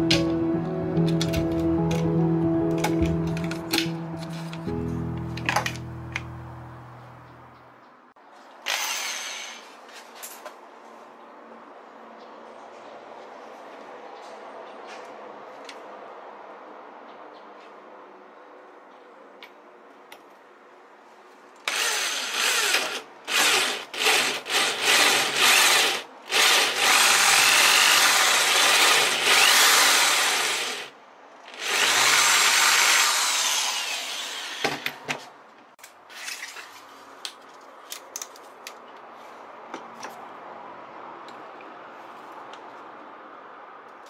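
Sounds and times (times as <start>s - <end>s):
power drill boring into wood: 8.7s - 9.7s, 21.7s - 30.9s, 31.5s - 34.9s.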